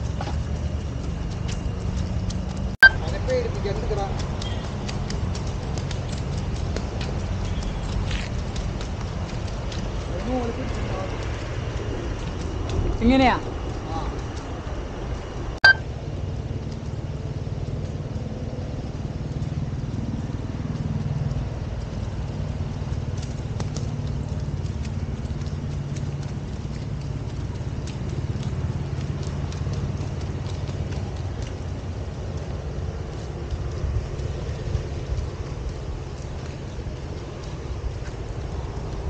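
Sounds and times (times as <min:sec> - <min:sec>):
hooves on wet dirt: 0:00.0 - 0:39.0
steady low rumble: 0:00.0 - 0:39.0.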